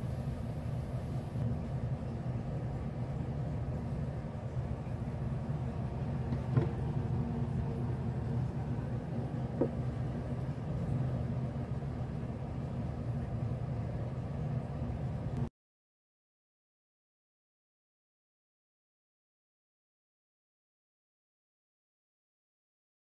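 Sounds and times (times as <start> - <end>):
low mechanical hum: 0.0 - 15.5.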